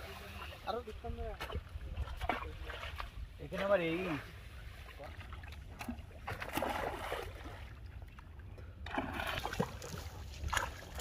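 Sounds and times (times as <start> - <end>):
water splashing and sloshing: 0.0 - 11.0
fish thrashing in water: 5.1 - 7.9, 8.8 - 11.0.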